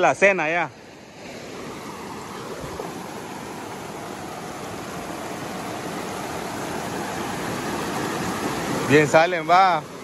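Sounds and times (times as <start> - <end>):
river water rushing over rocks: 0.0 - 10.0.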